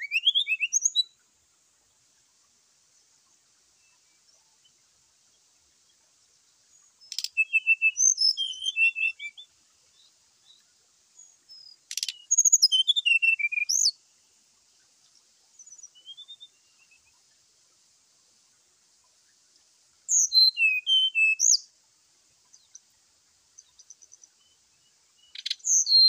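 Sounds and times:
bird chirping and twittering: 0.0 - 1.1, 6.7 - 10.6, 11.2 - 14.0, 15.6 - 17.2, 20.1 - 21.6, 23.6 - 26.0.

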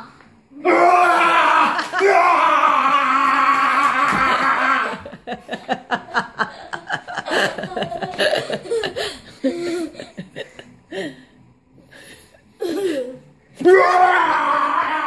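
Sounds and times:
loud scream: 0.6 - 5.0, 13.6 - 15.0
person laughing in bursts: 4.1 - 10.6.

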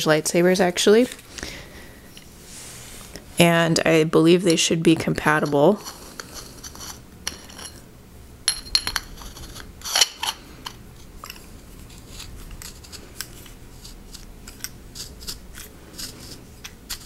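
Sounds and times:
metal parts clicking and scraping: 8.5 - 17.0.

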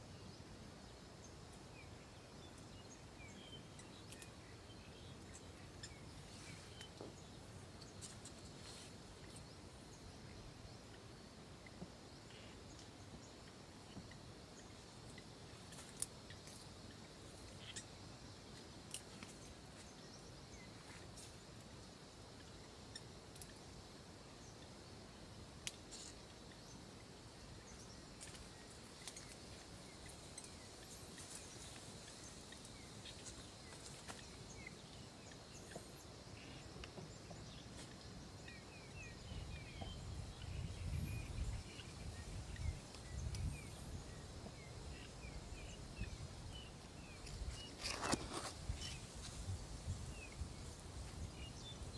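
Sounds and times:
steady high hiss: 0.0 - 51.9
bird chirps: 16.2 - 18.0.

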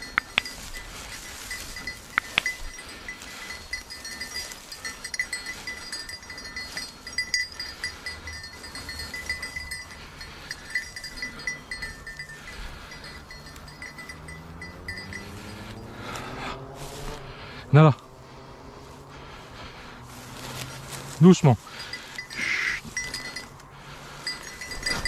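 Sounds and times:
small bell jingling: 0.0 - 16.2, 21.2 - 25.0
dog moving through dry grass: 0.0 - 17.2, 20.1 - 23.6.

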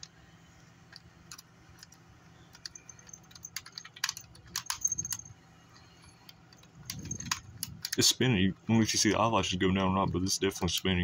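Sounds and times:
small bells jingling: 2.6 - 5.4.

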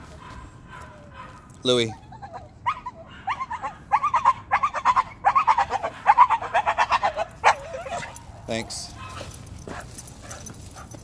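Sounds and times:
dog whining and yipping: 1.9 - 8.3.

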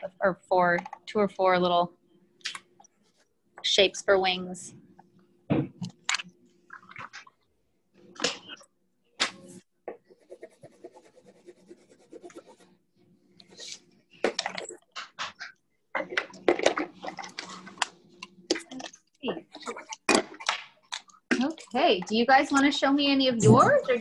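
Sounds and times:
marker scribbling on paper: 10.1 - 12.8.

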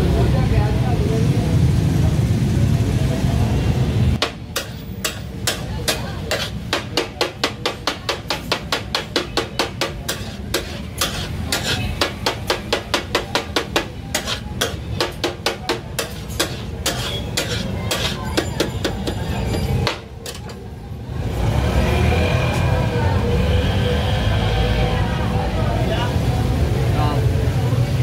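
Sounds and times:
metal spatulas striking a griddle: 4.2 - 20.6.

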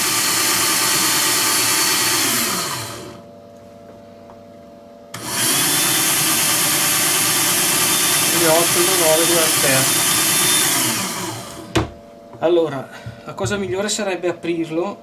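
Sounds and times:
drill motor whine: 0.0 - 3.2, 5.1 - 11.9.

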